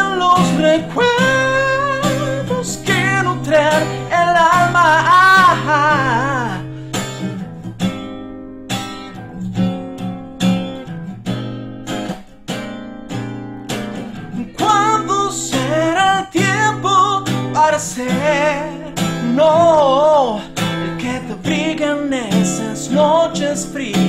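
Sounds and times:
man singing: 0.0s - 6.8s, 14.3s - 24.0s
acoustic guitar strumming: 0.0s - 24.0s.

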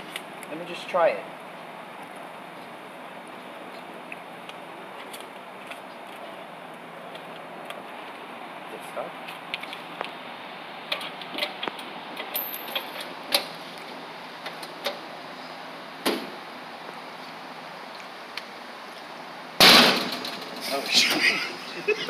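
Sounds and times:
steady background hum: 0.0s - 22.0s.

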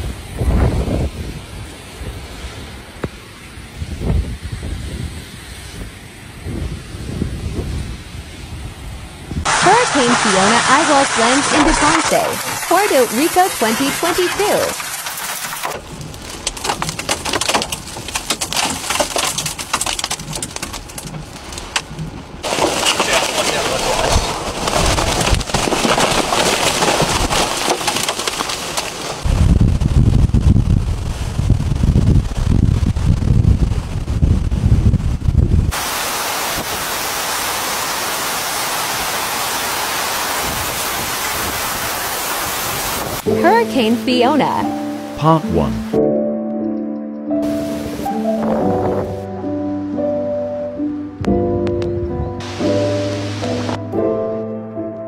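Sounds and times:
howling wind: 0.0s - 9.5s, 29.0s - 43.3s, 47.4s - 49.5s
driving rain: 0.0s - 45.9s, 47.4s - 49.3s, 52.4s - 53.9s
debris cracking and rattling: 9.5s - 30.7s
low rumble: 29.2s - 35.7s.

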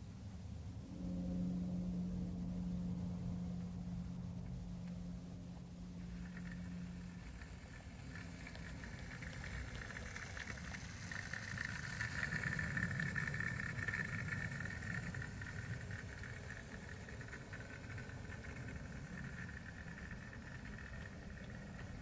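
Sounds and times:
electric motor and gear whine: 0.7s - 22.0s
wheels clicking over rails: 5.6s - 22.0s.

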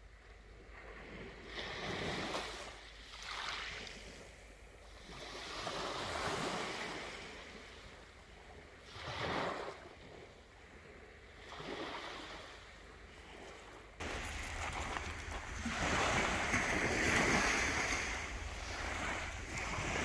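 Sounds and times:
small waves breaking on beach: 0.1s - 20.0s.

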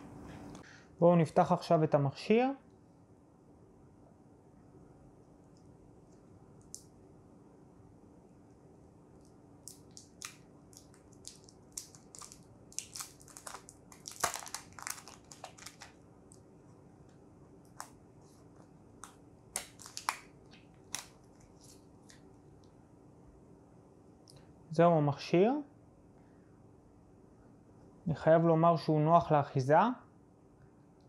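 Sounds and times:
plastic film crackling: 9.7s - 16.0s, 19.0s - 22.2s.

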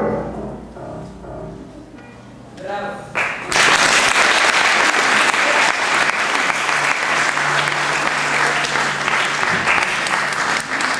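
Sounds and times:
piano notes: 0.0s - 10.9s
audience applauding: 3.2s - 10.9s.

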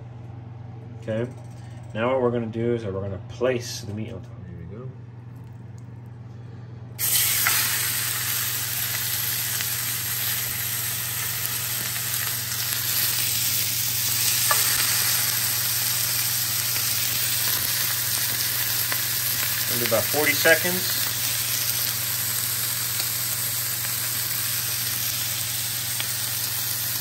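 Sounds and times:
low steady hum: 0.0s - 27.0s
meat sizzling in skillet: 7.0s - 27.0s.

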